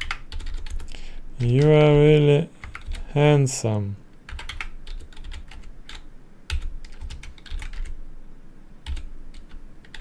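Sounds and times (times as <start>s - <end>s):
computer keyboard typing: 0.0s - 2.0s, 2.6s - 3.0s, 4.3s - 8.0s, 8.8s - 10.0s.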